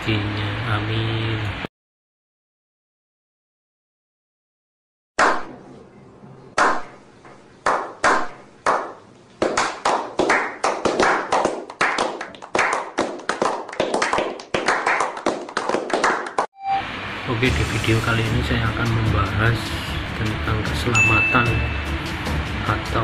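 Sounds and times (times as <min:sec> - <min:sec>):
men slow-clapping: 0:07.6 - 0:16.5.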